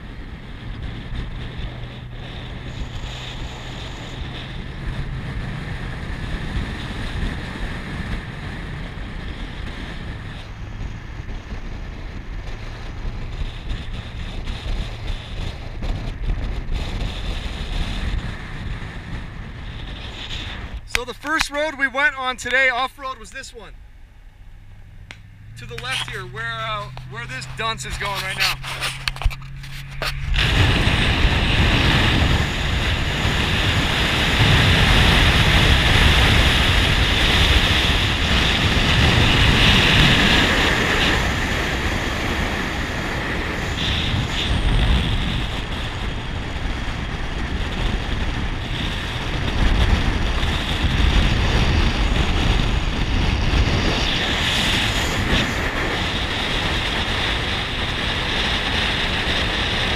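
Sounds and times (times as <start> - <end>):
deep rumble: 0.0 - 59.9
wind buffeting microphone: 0.0 - 59.9.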